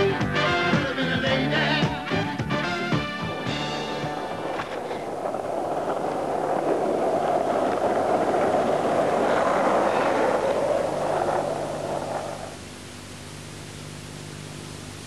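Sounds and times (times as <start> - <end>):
skateboard wheels rolling on asphalt: 0.0 - 13.9.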